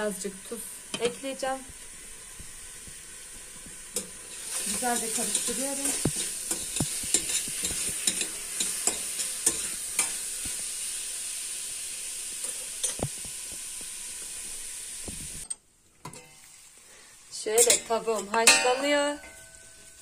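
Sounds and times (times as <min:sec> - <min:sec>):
chicken sizzling in a pot: 0:00.0 - 0:15.5, 0:16.1 - 0:20.0
utensil scraping metal pot: 0:03.8 - 0:10.2.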